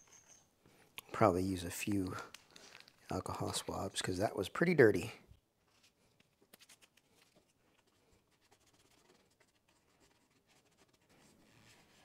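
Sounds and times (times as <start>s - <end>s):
swab rubbing on plastic: 8.4s - 12.0s.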